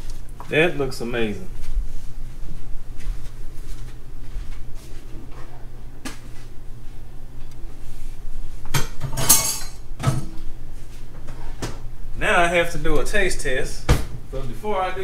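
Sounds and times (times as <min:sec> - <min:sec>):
plates and cutlery clinking: 0:08.7 - 0:10.4.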